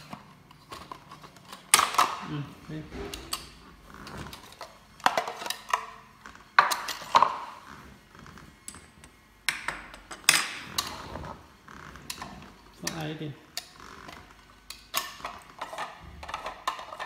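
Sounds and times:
meat grinder parts clattering: 10.1s - 17.0s.

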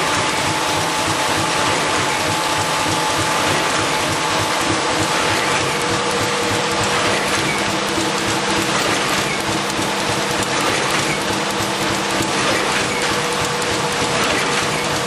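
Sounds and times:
constant machine hum: 0.0s - 15.0s
machine clatter of rapid clicks: 0.0s - 15.0s.

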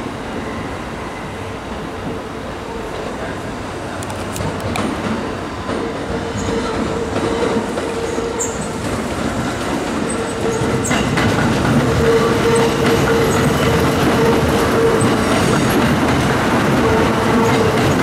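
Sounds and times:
steady train whine: 0.0s - 18.0s
train wheels clacking over rail joints: 4.0s - 18.0s.

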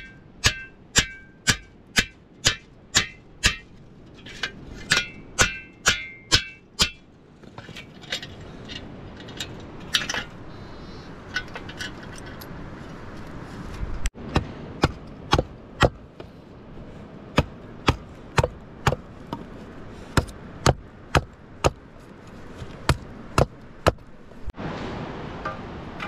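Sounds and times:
hatchet chopping wood: 0.0s - 3.7s, 14.2s - 16.3s, 17.3s - 19.5s, 20.1s - 21.8s, 22.6s - 24.1s.

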